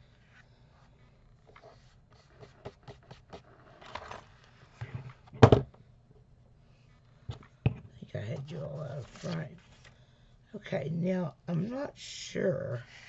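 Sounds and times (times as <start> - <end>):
paper rustling scrape: 3.4 - 5.2, 8.8 - 9.9.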